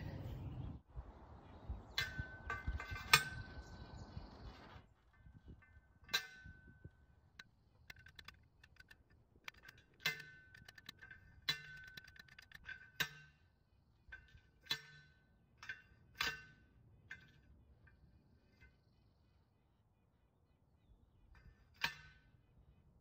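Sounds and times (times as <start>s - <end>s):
post pounder clanging on metal post: 1.9s - 3.7s, 5.1s - 7.1s, 7.8s - 17.5s.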